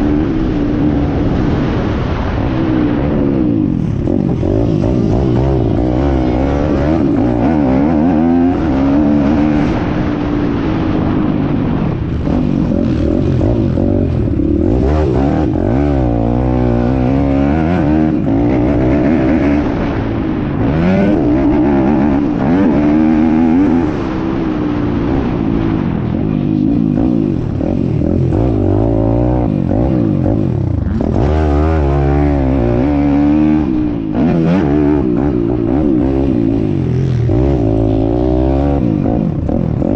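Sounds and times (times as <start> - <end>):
motorbike engine revving: 0.0 - 39.9.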